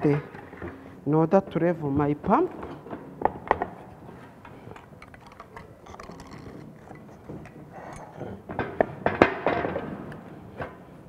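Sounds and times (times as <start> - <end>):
pipe and blocks clattering: 4.7 - 9.9.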